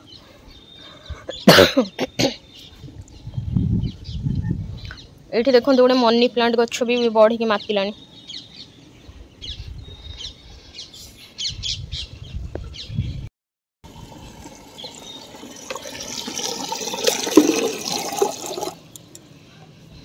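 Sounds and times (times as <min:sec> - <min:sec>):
birds chirping: 0:00.0 - 0:13.3, 0:13.9 - 0:20.0
tap water splashing into plastic bucket: 0:15.5 - 0:18.7.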